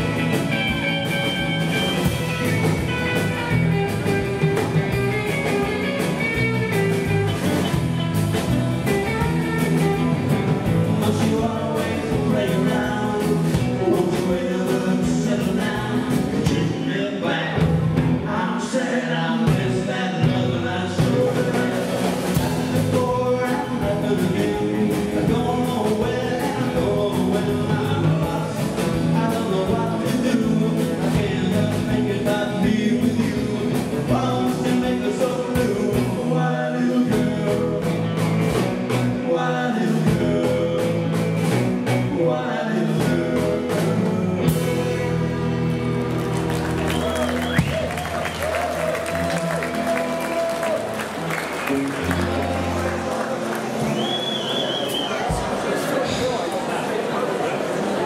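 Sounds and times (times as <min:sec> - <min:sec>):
drum kit beat: 0:00.0 - 0:16.8, 0:19.5 - 0:36.4, 0:42.9 - 0:54.2
electric guitars: 0:00.0 - 0:56.7.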